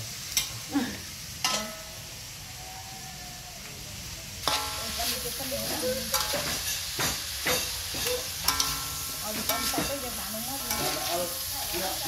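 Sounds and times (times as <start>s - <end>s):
meat sizzling: 0.0s - 12.0s
metal spatula clanking on wok: 0.3s - 0.7s, 1.4s - 2.1s, 4.4s - 12.0s.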